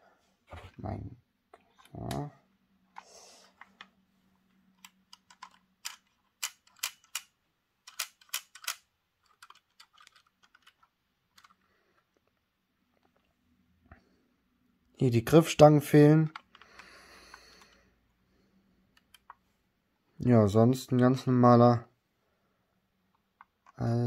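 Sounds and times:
sharp plastic clicks: 4.8 - 10.8.

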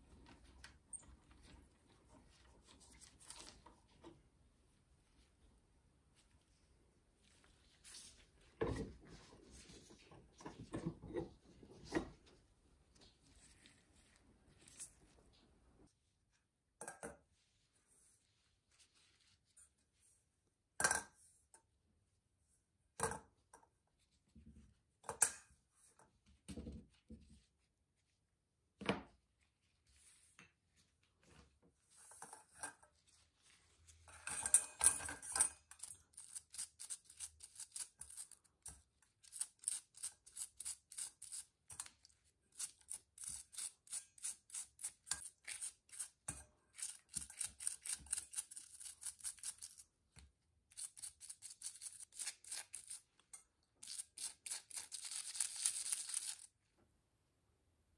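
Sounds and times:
brush scrubbing metal parts: 39.2 - 49.8, 50.7 - 53.2.

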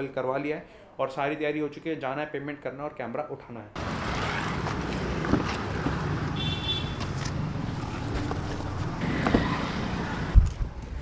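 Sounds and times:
city street traffic: 3.8 - 11.0.

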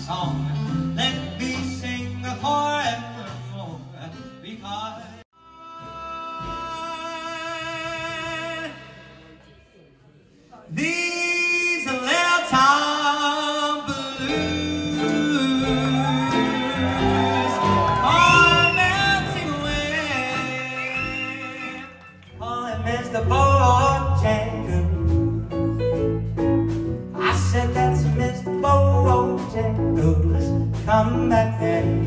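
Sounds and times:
bass guitar: 0.0 - 5.2, 13.9 - 32.0
guitar: 0.0 - 5.2, 13.8 - 32.0
man singing: 0.0 - 9.4, 10.7 - 25.7, 27.0 - 32.0.

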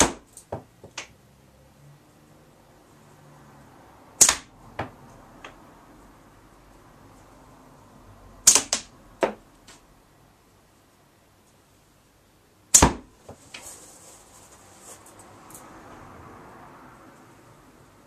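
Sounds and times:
slingshot shot cracks: 4.2 - 4.5, 8.4 - 8.9, 12.7 - 13.0.

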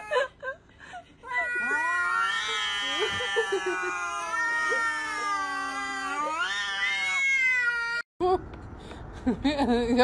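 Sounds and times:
cat yowling: 1.3 - 8.0.

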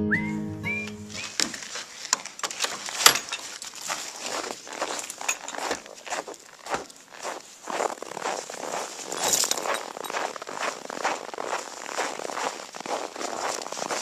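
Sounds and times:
crunching and crackling: 1.1 - 14.0.

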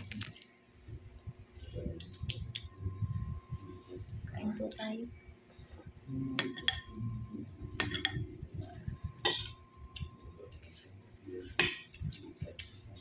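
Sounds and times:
spoon clinking on plate: 6.4 - 7.0, 7.8 - 8.2.

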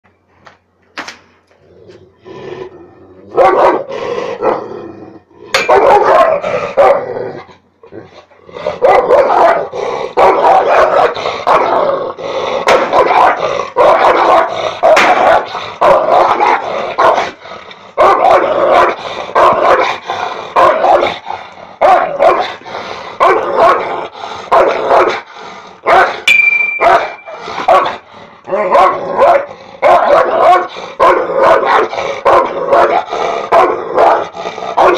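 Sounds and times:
dog growling: 1.6 - 26.2, 27.3 - 34.9
dog barking aggressively: 3.3 - 4.6, 5.6 - 7.2, 8.6 - 12.0, 12.6 - 17.4, 18.0 - 26.2, 26.8 - 34.9.

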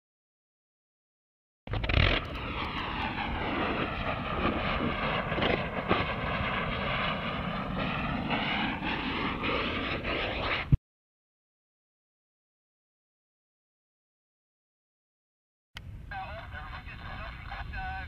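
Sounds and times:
rocket motor exhaust roar: 1.7 - 10.8.

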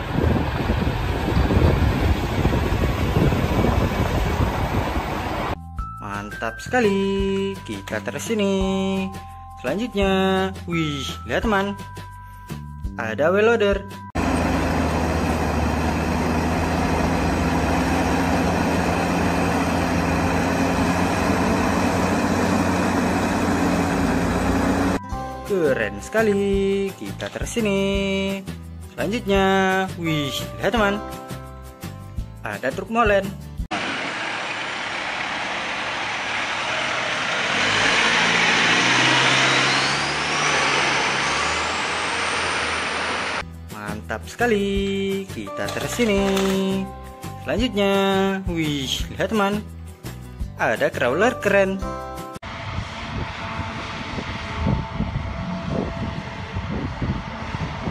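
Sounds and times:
road noise: 0.0 - 5.6, 14.2 - 25.0, 33.7 - 43.4, 52.4 - 57.9
thin rising whine: 14.2 - 25.0, 33.7 - 43.4, 52.4 - 57.9
bulldozer diesel engine droning: 14.2 - 25.1, 33.7 - 43.4, 52.4 - 57.9.

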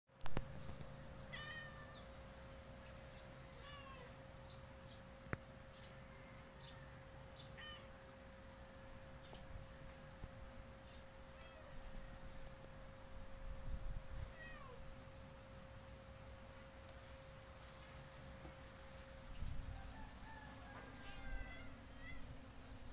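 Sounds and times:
insect trilling: 0.2 - 9.3, 10.6 - 15.5, 18.9 - 22.9.

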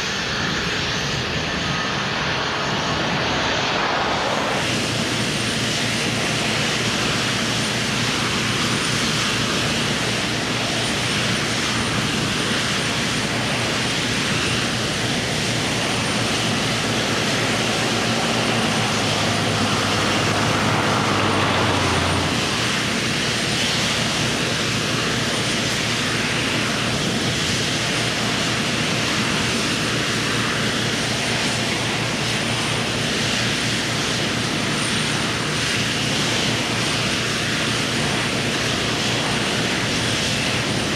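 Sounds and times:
steady engine drone: 0.0 - 40.9
wide rushing noise: 1.1 - 33.6.

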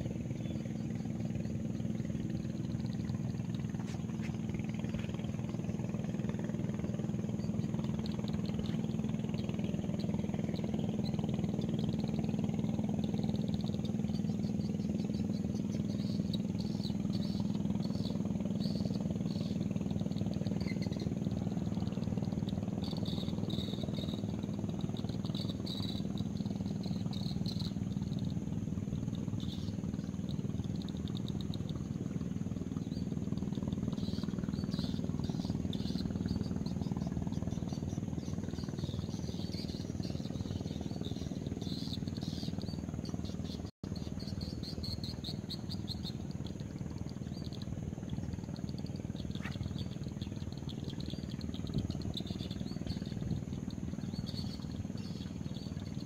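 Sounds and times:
low engine drone: 0.0 - 56.0.

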